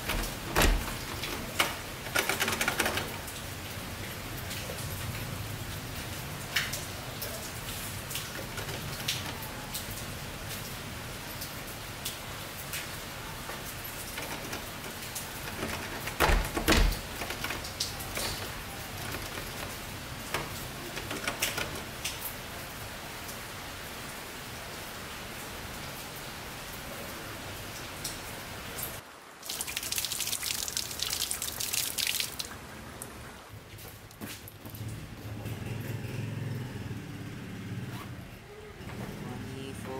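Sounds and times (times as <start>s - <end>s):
drips and clicks: 0.0s - 3.5s
light water patter: 0.0s - 36.6s
water tap running: 29.4s - 32.5s.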